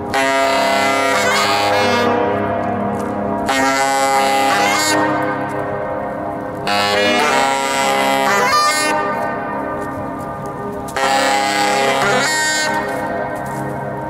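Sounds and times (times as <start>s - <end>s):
saxophones playing held notes: 0.1s - 2.4s, 3.4s - 5.8s, 6.6s - 10.2s, 10.9s - 13.8s.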